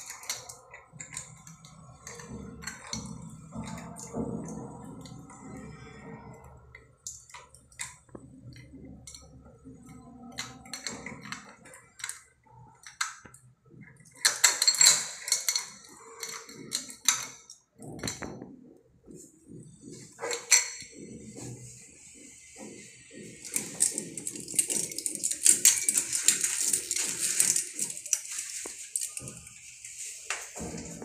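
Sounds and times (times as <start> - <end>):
metallic clicks and scrapes: 22.5 - 31.0.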